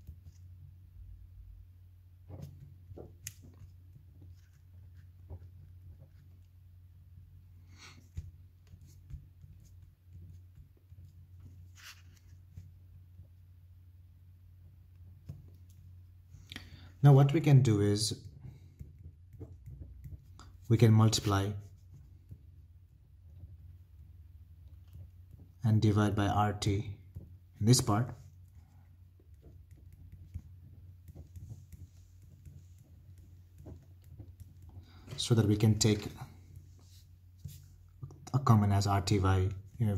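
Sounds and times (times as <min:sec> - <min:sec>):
marker pen scratching on paper: 0:02.3 - 0:06.6, 0:08.0 - 0:12.9, 0:18.2 - 0:25.6, 0:27.0 - 0:38.2.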